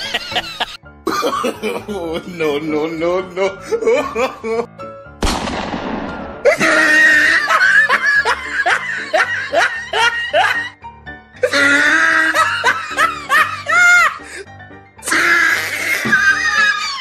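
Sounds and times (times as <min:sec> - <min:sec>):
loud laughter: 0:00.0 - 0:04.7, 0:06.5 - 0:10.8, 0:11.4 - 0:14.4
background music: 0:00.0 - 0:17.0.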